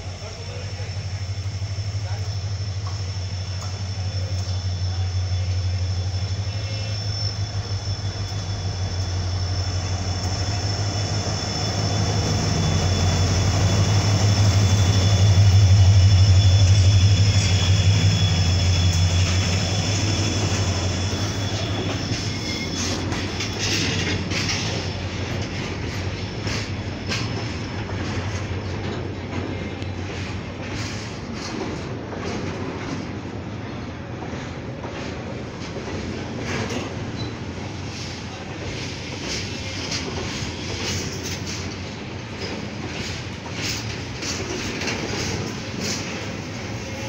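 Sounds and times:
diesel locomotive engine humming: 0.0 - 47.0
high whine: 0.8 - 23.6.

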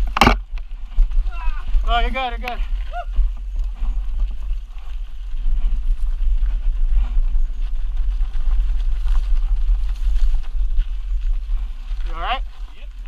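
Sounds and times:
bike rattling clicks: 0.0 - 0.8
wind buffeting microphone: 0.0 - 13.0.

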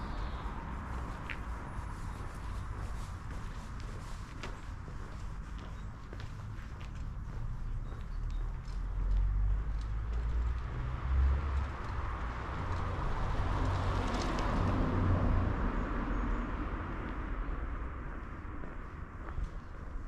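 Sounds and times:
vehicle passing by: 7.5 - 18.3.

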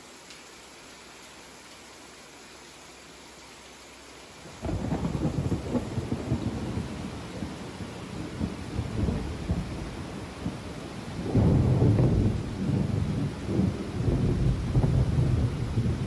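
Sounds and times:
steady rain: 0.0 - 16.0
thunder rumbling: 4.5 - 16.0.

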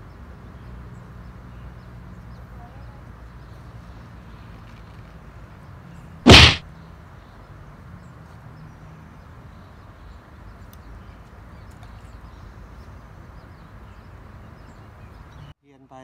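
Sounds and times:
fishing rod swish: 6.3 - 6.6.

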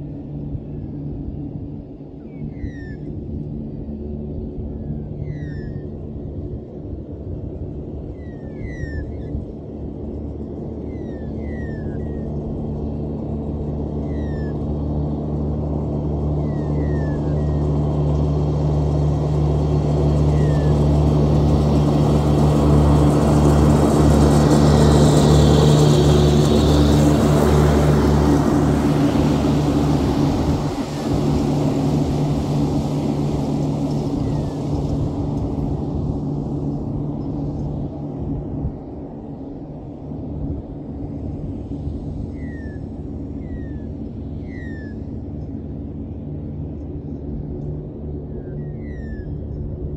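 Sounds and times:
ride-on mower engine running: 11.7 - 43.2.

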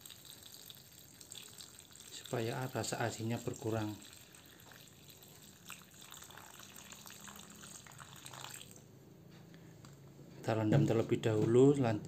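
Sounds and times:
water pouring into a metal bowl: 0.0 - 8.8.

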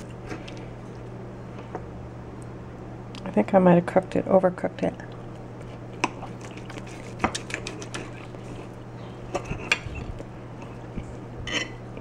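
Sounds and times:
cutlery scraping on glass plate: 11.5 - 11.8.

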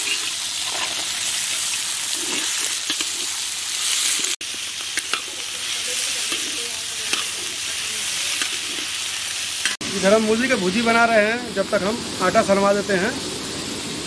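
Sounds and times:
spatula scraping a pan: 0.0 - 1.1, 2.0 - 4.4
radish sizzling in hot oil: 0.0 - 14.0.

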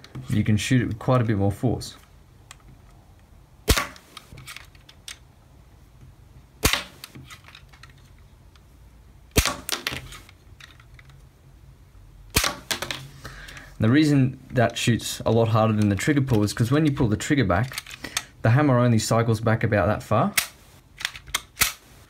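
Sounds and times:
toy gun snapping: 3.7 - 4.3, 20.4 - 21.8.

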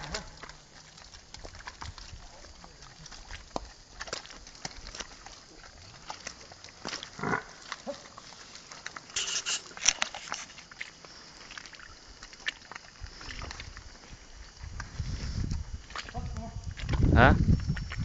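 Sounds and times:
hooves squelching in mud: 0.0 - 18.0
harsh hissy burst: 9.2 - 9.8.

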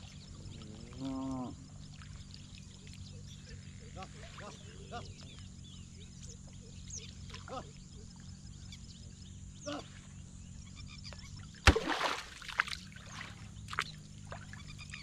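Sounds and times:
frogs calling: 0.0 - 15.0
stick smacking water: 11.6 - 12.8.

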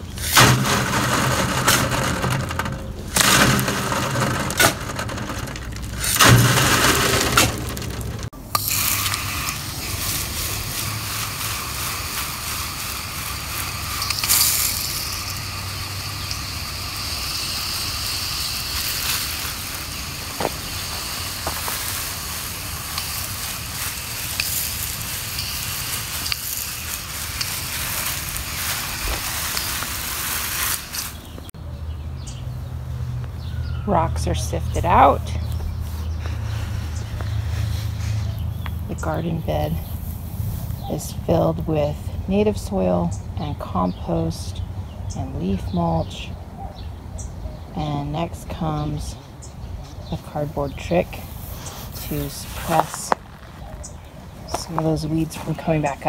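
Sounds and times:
hose spraying water on soil: 0.0 - 7.7, 8.5 - 31.3, 50.2 - 53.2
soil shaken through sifting screen: 0.2 - 31.4.

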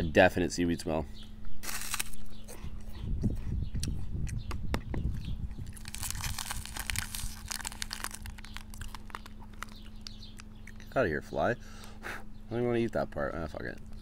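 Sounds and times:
steady low hum: 0.0 - 14.0
plastic wrapper crinkling: 1.6 - 2.2, 5.6 - 10.5.

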